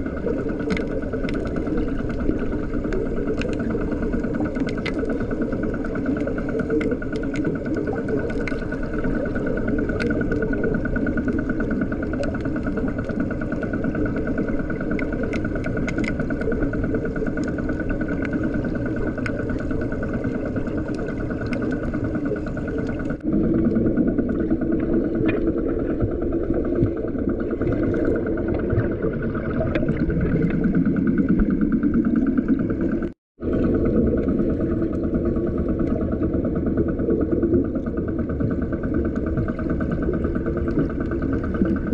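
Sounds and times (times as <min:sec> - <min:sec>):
muffled engine drone underwater: 0:00.0 - 0:41.9
faint clicks: 0:00.6 - 0:05.2, 0:06.0 - 0:10.7, 0:14.4 - 0:16.6, 0:17.3 - 0:23.2.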